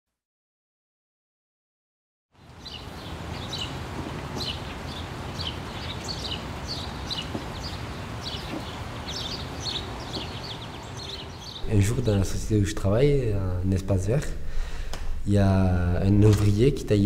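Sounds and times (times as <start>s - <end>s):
birds chirping: 2.4s - 14.0s.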